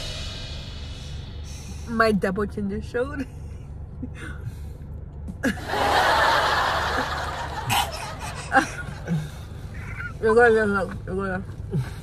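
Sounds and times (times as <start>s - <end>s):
breathy snickering laughter: 6.8s - 10.1s.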